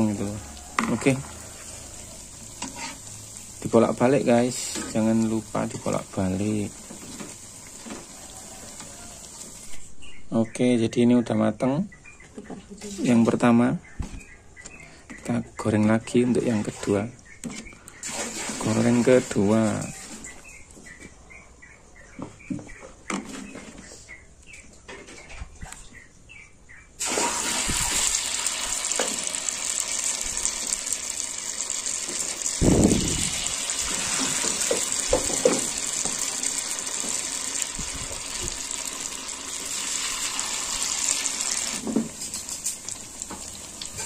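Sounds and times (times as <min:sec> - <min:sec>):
batter sizzling in hot oil: 0:00.0 - 0:09.9, 0:18.0 - 0:20.0, 0:27.0 - 0:44.0.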